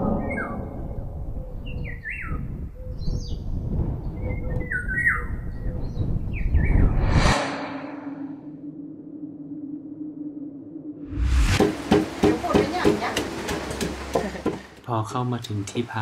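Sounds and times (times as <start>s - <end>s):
rush of noise: 6.7s - 11.6s.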